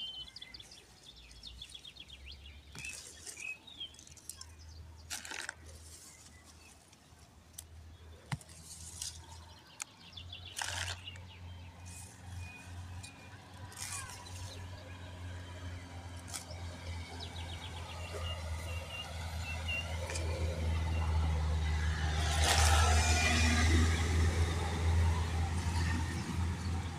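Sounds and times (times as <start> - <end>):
leaves rustling: 2.7 - 7.4, 8.3 - 9.7.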